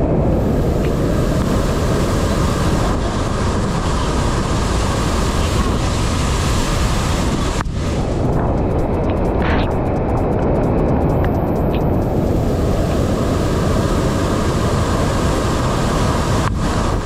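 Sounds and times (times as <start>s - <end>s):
waterfall rushing over rocks: 0.0s - 8.1s, 12.2s - 17.0s.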